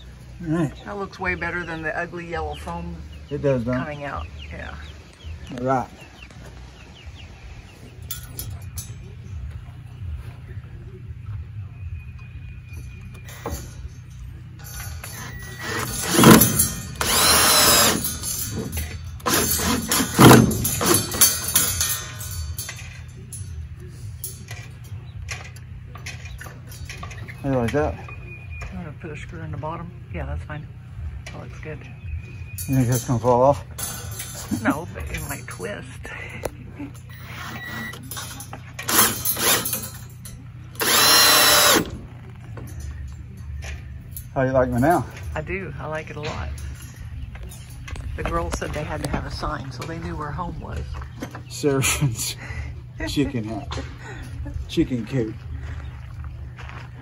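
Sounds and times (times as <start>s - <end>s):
cordless drill driving screws: 15.1s - 18.0s, 37.1s - 38.0s, 38.9s - 39.8s, 40.8s - 41.9s.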